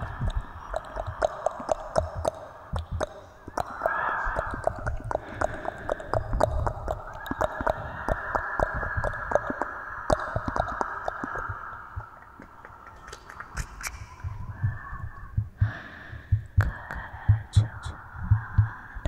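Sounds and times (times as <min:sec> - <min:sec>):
quick irregular clicks: 0:00.0 - 0:14.7
hands rubbing: 0:12.3 - 0:14.3.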